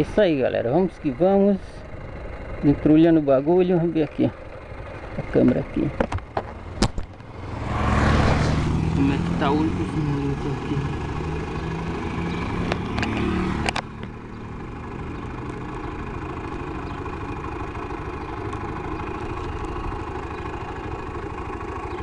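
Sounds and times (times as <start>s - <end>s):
motorcycle engine running: 0.0s - 22.0s
sharp clicks and knocks: 5.0s - 7.3s, 12.6s - 14.2s.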